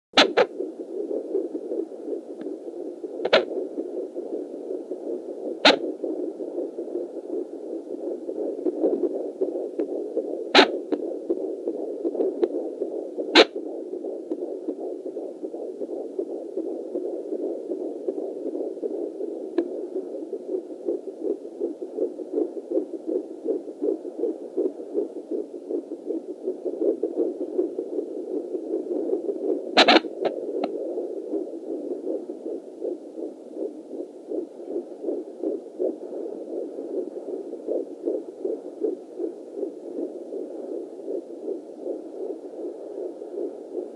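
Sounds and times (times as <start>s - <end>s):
fetal heartbeat on doppler speaker: 0.2s - 43.9s
sharp clicks: 29.8s - 30.7s.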